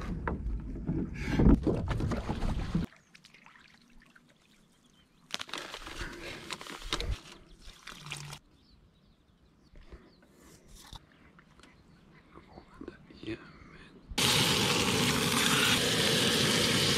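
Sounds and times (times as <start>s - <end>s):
water splashing and trickling: 1.6s - 8.5s.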